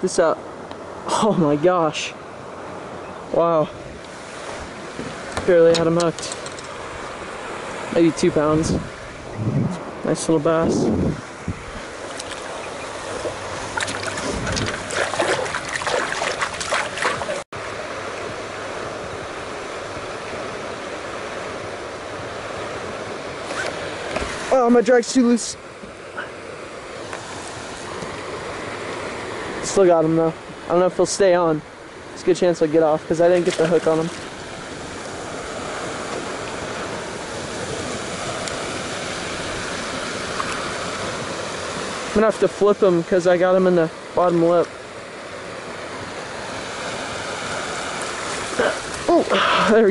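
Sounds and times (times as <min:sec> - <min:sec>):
wind and water hiss: 0:00.0 - 0:49.9
water splashing and dribbling: 0:11.8 - 0:17.5, 0:32.6 - 0:42.7, 0:46.4 - 0:49.9.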